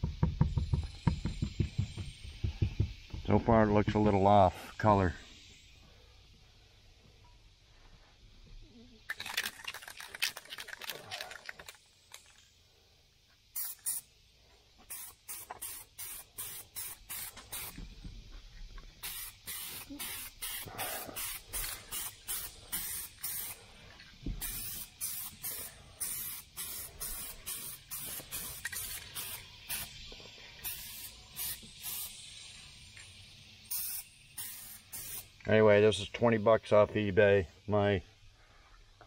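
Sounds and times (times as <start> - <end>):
aerosol spray can hissing: 5.2 - 5.8, 13.4 - 17.9, 18.9 - 35.5.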